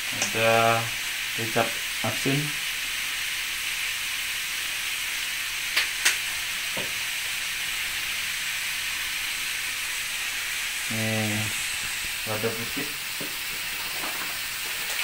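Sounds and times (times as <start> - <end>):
food sizzling in a wok: 0.0 - 15.0
sharp clicks: 5.8 - 6.2.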